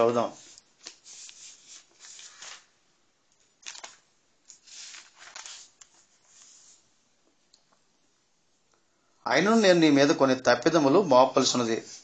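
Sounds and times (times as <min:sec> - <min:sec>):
paper pages rustling: 0:00.0 - 0:02.7, 0:03.4 - 0:06.8.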